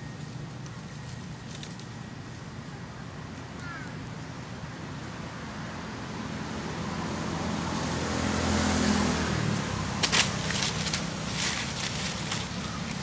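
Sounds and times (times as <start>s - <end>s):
vehicle engine passing by: 5.3s - 13.0s.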